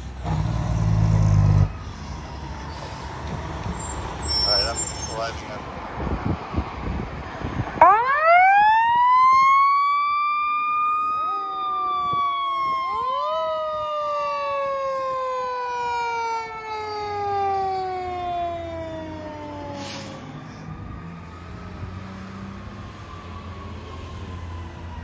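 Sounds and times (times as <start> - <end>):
truck engine rumbling: 0.0 - 8.4
mechanical fire siren wailing: 7.8 - 25.0.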